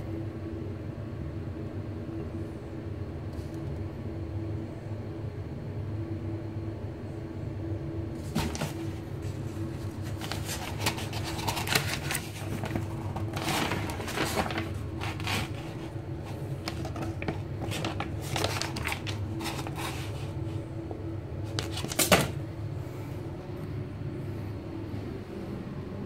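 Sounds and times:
paper pages rustling: 8.2 - 20.7, 21.4 - 22.4.

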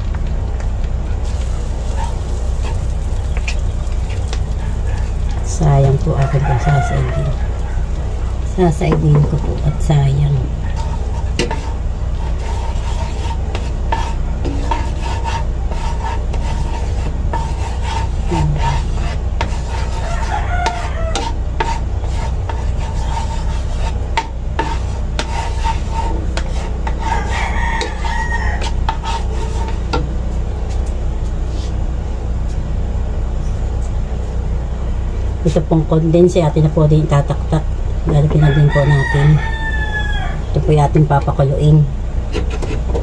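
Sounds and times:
low hum: 0.0 - 43.0
wooden spatula scraping a pan: 1.2 - 9.6, 10.6 - 30.0.

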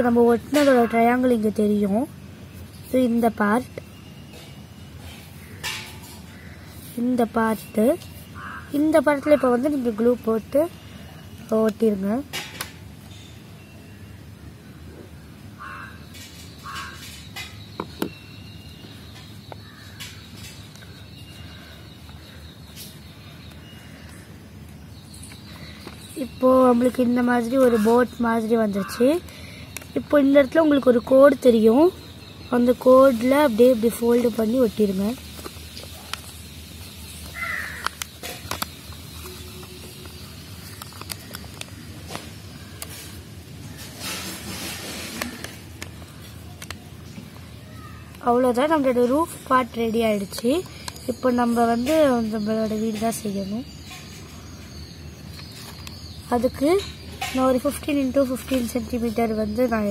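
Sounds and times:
birds calling: 0.0 - 59.9
low background hum: 0.0 - 59.9
paper rustling and clicking: 37.2 - 43.2.

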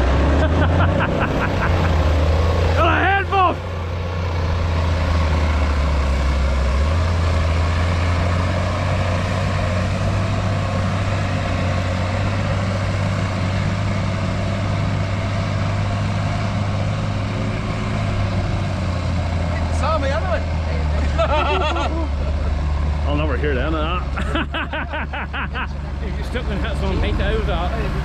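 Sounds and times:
tractor engine under load: 0.0 - 28.0.

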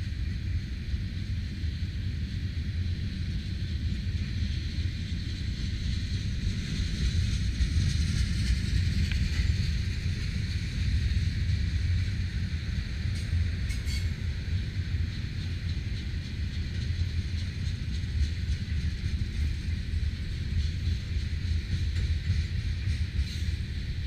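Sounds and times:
train wheels rumbling on rail: 0.0 - 24.0
hiss: 15.0 - 24.0.

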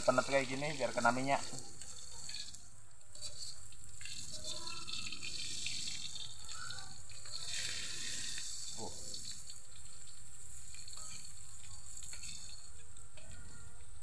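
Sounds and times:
fish sizzling in oil: 0.0 - 14.0.

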